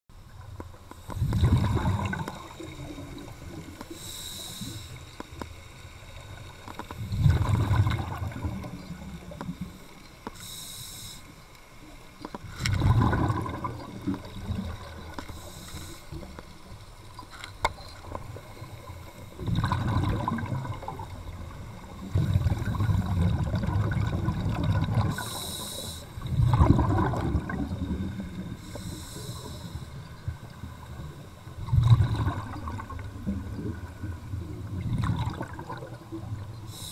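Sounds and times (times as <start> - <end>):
exhale bubbling rumble: 1.1 - 3.8, 6.0 - 10.0, 12.4 - 16.8, 17.9 - 36.9
regulator inhale hiss: 3.8 - 5.4, 9.7 - 11.7, 15.2 - 16.4, 25.1 - 26.2, 28.4 - 30.2, 36.6 - 36.9.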